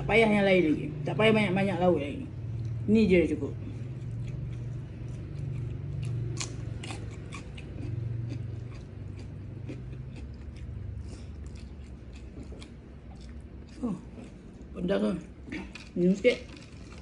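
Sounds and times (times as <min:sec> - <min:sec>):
steady low hum: 0:00.0 - 0:17.0
chewing crunchy vegetables: 0:03.6 - 0:14.8, 0:15.4 - 0:17.0.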